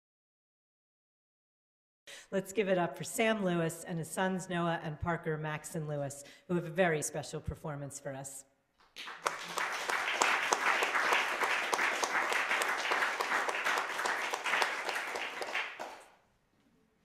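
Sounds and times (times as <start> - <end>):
applause: 8.8 - 16.2.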